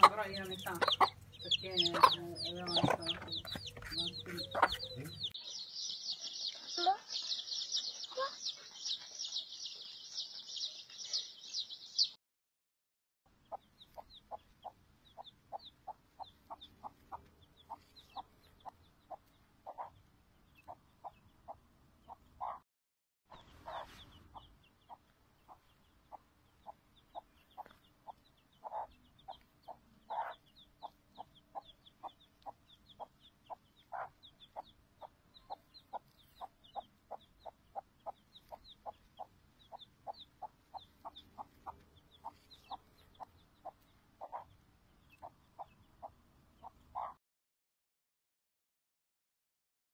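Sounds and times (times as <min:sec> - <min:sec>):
chicks peeping: 0:00.0 - 0:12.1, 0:13.4 - 0:22.6, 0:23.3 - 0:47.2.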